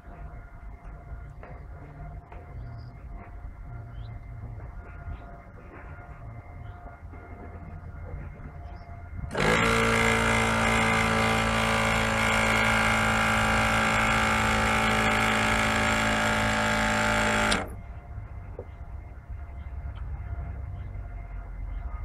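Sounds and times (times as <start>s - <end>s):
machine humming and hissing: 9.3s - 17.8s.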